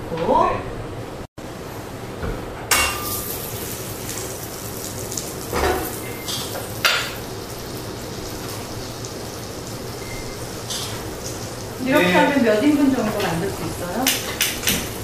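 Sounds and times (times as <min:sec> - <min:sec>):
butter sizzling in a pan: 0:03.0 - 0:15.0.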